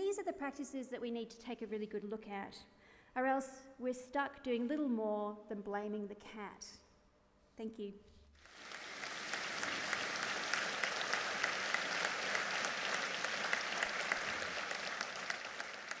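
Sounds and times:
audience applauding: 8.4s - 16.0s.

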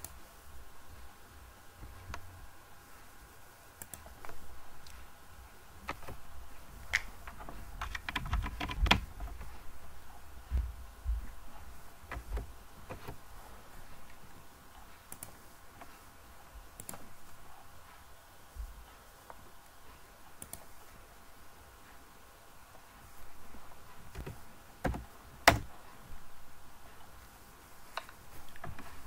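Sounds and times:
keyboard keys clicking: 6.8s - 9.6s, 12.1s - 13.2s, 24.1s - 25.8s.

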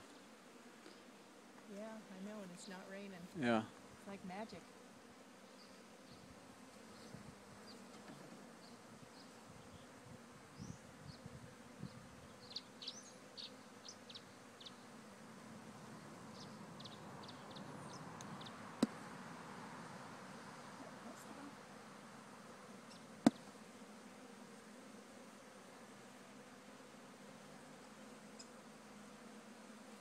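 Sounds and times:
high bee chirps: 0.0s - 15.2s, 15.8s - 30.0s
bee swarm humming: 0.0s - 30.0s.

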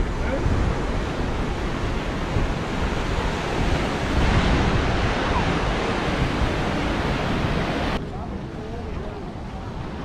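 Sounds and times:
surf breaking on rocks: 0.0s - 8.0s
wind buffeting microphone: 0.0s - 10.0s.

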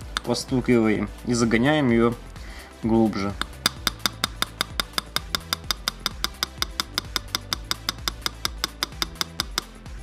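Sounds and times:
small hammer tapping on metal: 3.4s - 9.8s.

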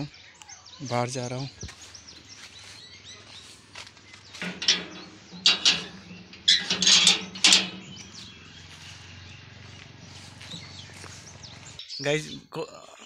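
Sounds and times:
iron gate bolt sliding: 4.3s - 9.6s.

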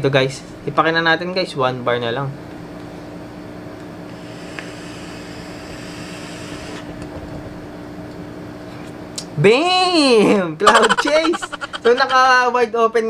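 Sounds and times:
airy hiss of vape inhale: 4.1s - 6.9s.

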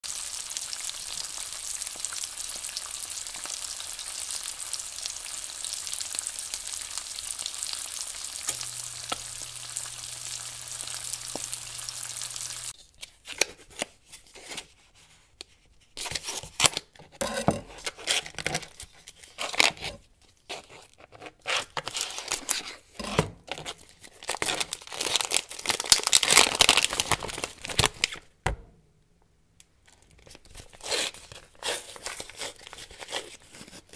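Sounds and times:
eggs sizzling in a pan: 0.0s - 12.8s
plastic wrap crinkling and tearing: 0.1s - 13.9s, 17.7s - 22.9s, 23.5s - 28.3s, 29.9s - 33.9s.

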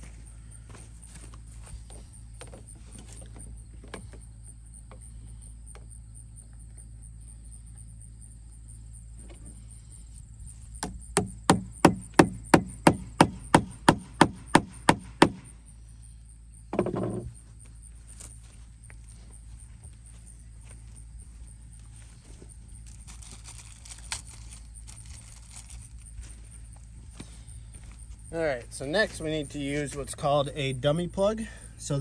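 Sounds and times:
hammer striking a nail into wood: 10.8s - 15.5s.

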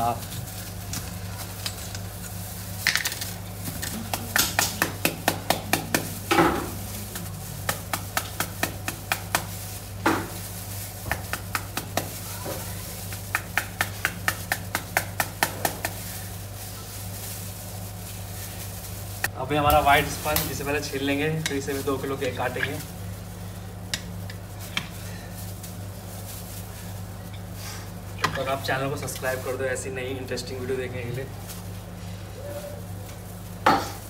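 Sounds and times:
low electrical hum: 0.0s - 34.0s
knife tapping pomegranate: 4.0s - 6.2s.

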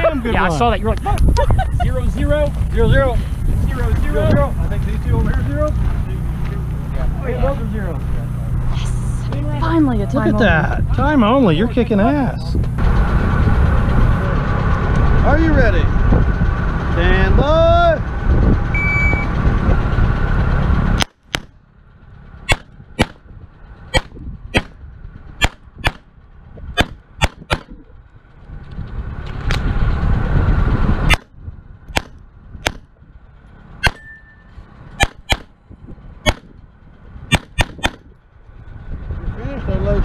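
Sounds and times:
rushing noise: 0.0s - 40.0s
shot timer beep: 18.7s - 19.3s
pistol shots: 35.0s - 35.5s, 36.3s - 36.5s, 37.3s - 38.0s.

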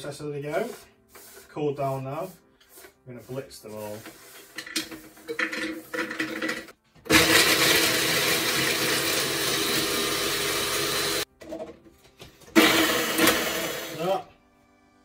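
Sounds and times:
food processor chopping: 7.1s - 11.2s, 12.6s - 14.0s.

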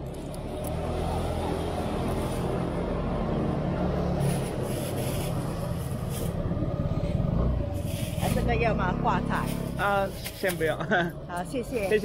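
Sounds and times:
vehicle engine humming: 0.0s - 12.0s
plastic bag rustling: 4.0s - 6.5s, 7.7s - 8.6s, 11.6s - 12.0s.

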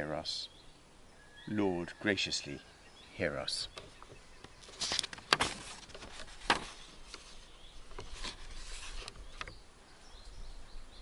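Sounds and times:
paper rustling: 4.6s - 9.5s.

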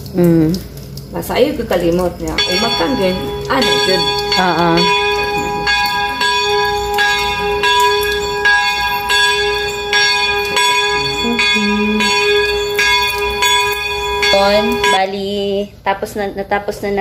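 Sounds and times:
bell-like chiming tones: 2.3s - 15.0s
steady held tone: 2.4s - 15.0s.

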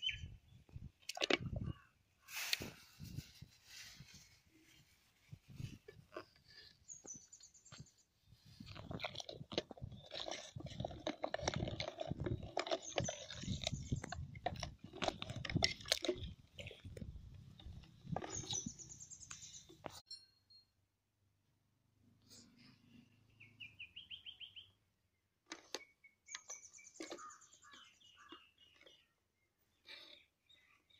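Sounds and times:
wooden stick scraping a pot: 1.3s - 20.0s.

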